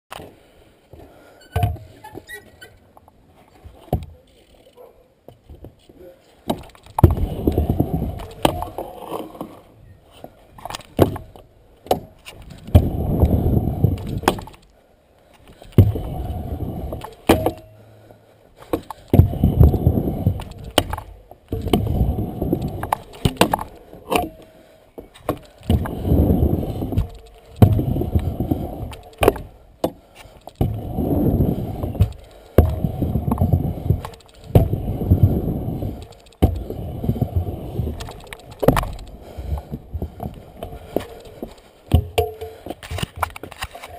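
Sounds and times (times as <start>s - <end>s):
scooter wheels rolling on concrete: 0.1s - 43.9s
scooter deck clacks and rattles: 6.4s - 9.6s, 10.6s - 14.7s, 15.4s - 17.8s, 18.6s - 43.9s.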